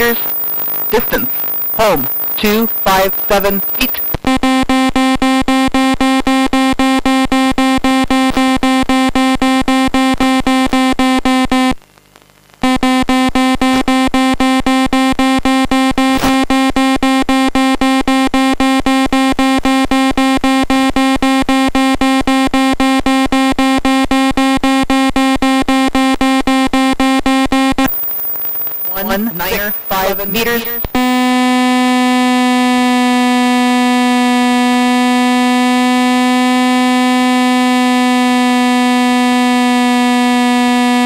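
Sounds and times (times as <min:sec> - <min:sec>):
rapid electronic beeps: 0:00.0 - 0:04.2, 0:27.8 - 0:31.4.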